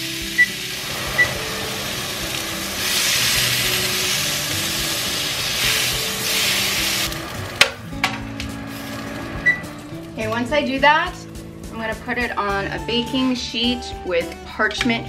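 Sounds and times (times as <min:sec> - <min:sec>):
meat sizzling in a pan: 0:00.0 - 0:07.6.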